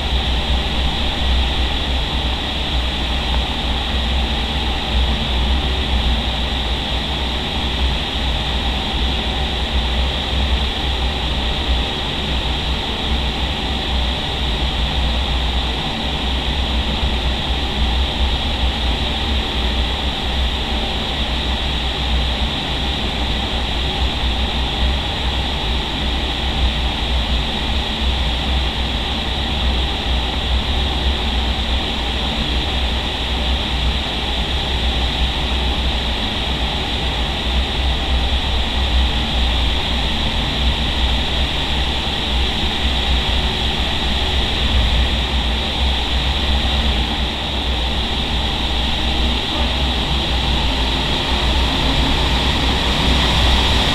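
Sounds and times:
wind tunnel air rushing: 0:00.0 - 0:53.9
heavy low rumble: 0:40.9 - 0:53.9.

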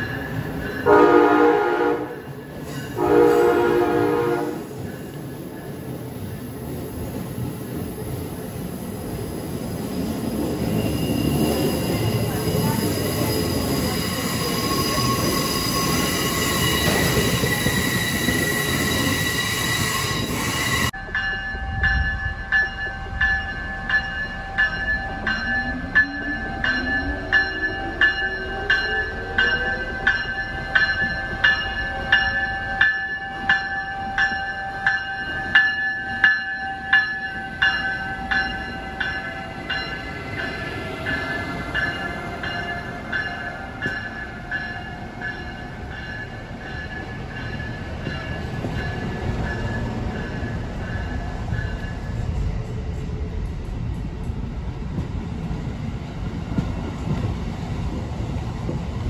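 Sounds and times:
train passing: 0:00.0 - 0:59.0
train wheels squealing: 0:02.4 - 0:03.0, 0:09.2 - 0:21.0
bell ringing: 0:11.6 - 0:52.1.

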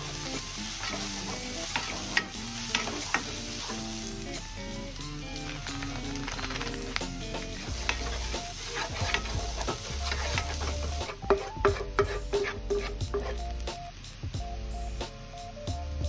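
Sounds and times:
spatula scraping frying pan: 0:00.0 - 0:04.4, 0:05.3 - 0:13.7
oil sizzling: 0:00.0 - 0:16.0
spatula tapping pan: 0:00.7 - 0:03.8, 0:05.6 - 0:13.7.

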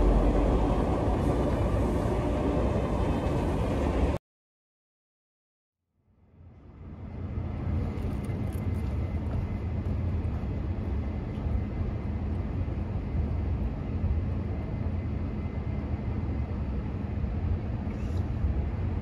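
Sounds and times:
distant traffic rumble: 0:00.0 - 0:04.0.

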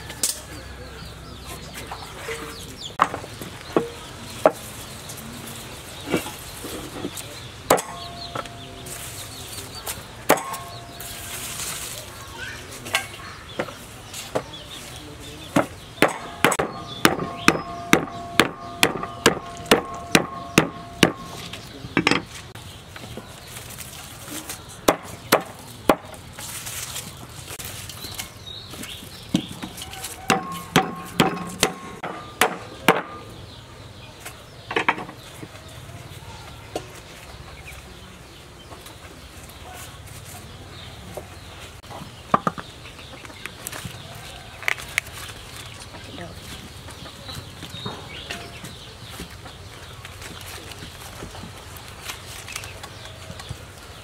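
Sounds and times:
cleaver chopping on wooden board: 0:15.6 - 0:22.3, 0:30.3 - 0:33.1.

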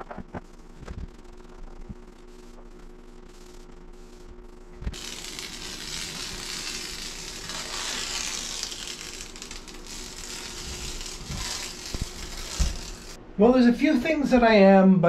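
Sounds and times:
masking tape peeling: 0:04.9 - 0:13.2.

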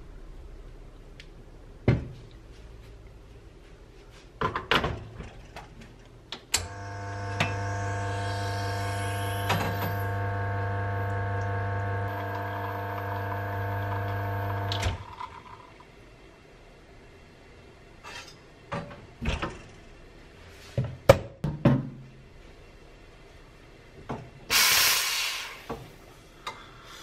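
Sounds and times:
espresso machine pump humming: 0:06.7 - 0:15.6.

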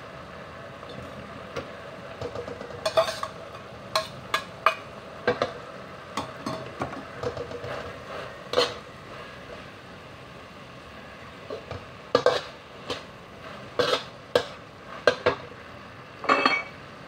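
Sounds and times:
faint frying hiss: 0:00.0 - 0:17.0
metal spatula scraping a wok: 0:02.8 - 0:04.2, 0:07.6 - 0:08.9, 0:12.2 - 0:15.2.

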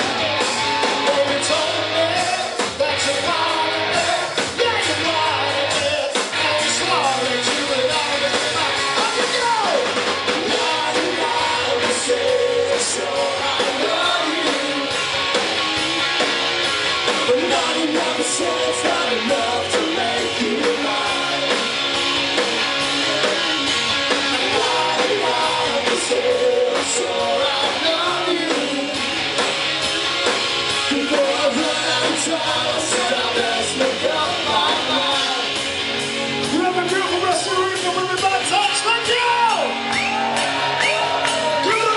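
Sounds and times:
singer singing: 0:00.0 - 0:15.1, 0:17.1 - 0:21.9, 0:24.1 - 0:29.2, 0:30.8 - 0:35.7
rock band playing live: 0:00.0 - 0:41.9.

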